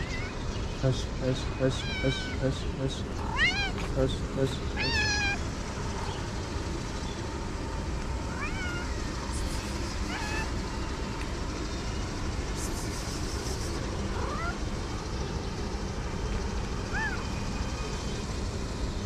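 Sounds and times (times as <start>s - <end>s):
cat meowing: 0.0s - 0.4s, 1.8s - 2.4s, 3.2s - 3.9s, 4.8s - 5.4s, 8.3s - 10.6s, 14.2s - 14.6s, 16.9s - 17.4s.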